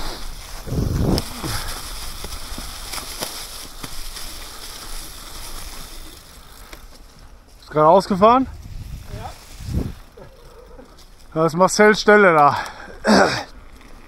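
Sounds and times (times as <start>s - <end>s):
bike tyres on dry leaves: 0.0s - 14.0s
wind buffet on microphone: 0.6s - 1.8s, 8.4s - 10.2s.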